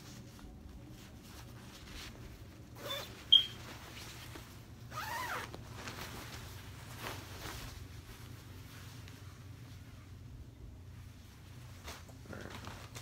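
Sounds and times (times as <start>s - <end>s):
nylon fabric rustling: 0.0s - 13.0s
zipper-like rasp: 2.8s - 3.1s.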